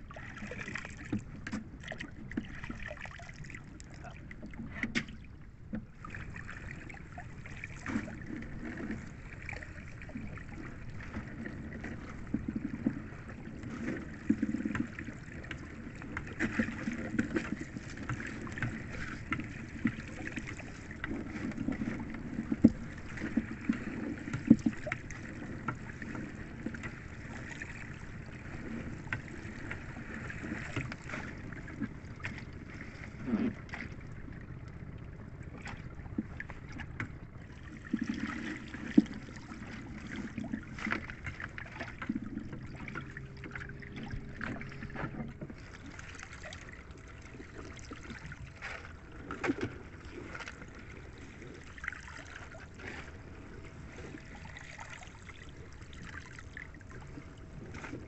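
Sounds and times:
seawater splashing and dripping: 0:00.0 - 0:58.0.

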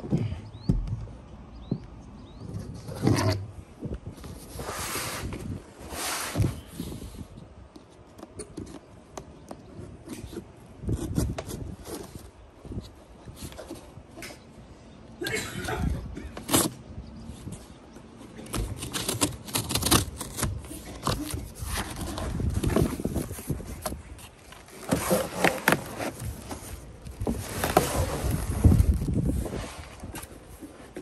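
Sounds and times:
cardboard box scraping and rustling: 0:02.4 - 0:03.6, 0:04.2 - 0:07.2, 0:18.4 - 0:31.0.

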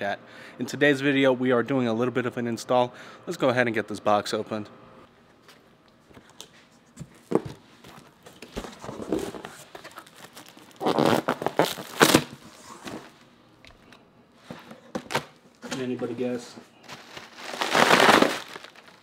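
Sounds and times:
plastic wrapping crinkling: 0:07.2 - 0:13.2, 0:16.8 - 0:19.0.

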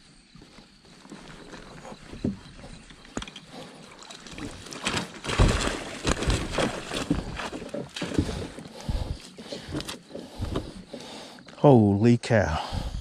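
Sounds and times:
fish splashing in water: 0:03.6 - 0:11.0.

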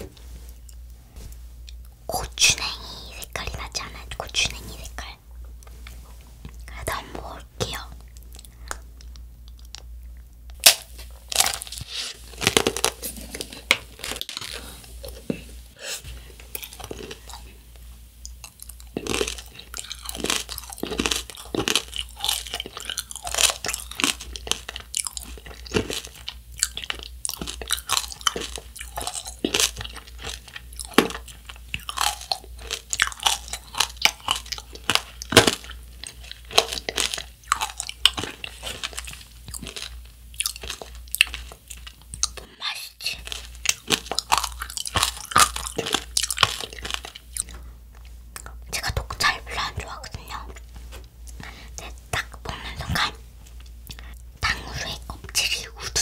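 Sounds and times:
candy shell crunching in chewing: 0:10.5 - 0:15.2, 0:16.4 - 0:17.5, 0:18.2 - 0:50.6.

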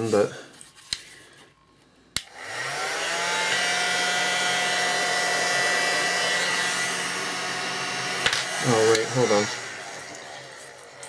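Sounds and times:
hot air gun fan whine: 0:02.2 - 0:11.0.

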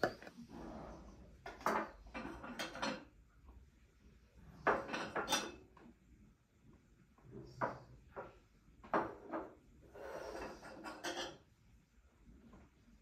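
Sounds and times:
plates and cutlery clinking: 0:00.0 - 0:00.4, 0:01.5 - 0:03.2, 0:04.6 - 0:05.8, 0:08.9 - 0:11.5.

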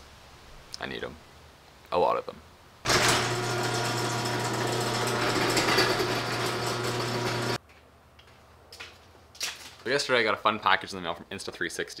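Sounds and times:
garage door motor hum: 0:02.9 - 0:07.6.

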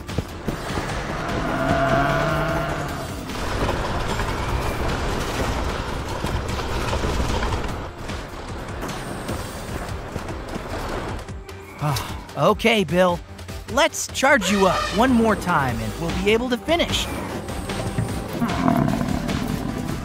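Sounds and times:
background music: 0:00.0 - 0:20.0
cartoon bulldozer engine running: 0:00.3 - 0:11.1.

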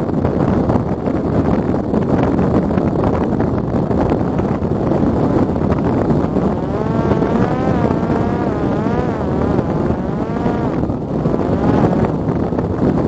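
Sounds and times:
wind on microphone: 0:00.0 - 0:13.0
electric motor and propeller drone: 0:04.9 - 0:13.0.

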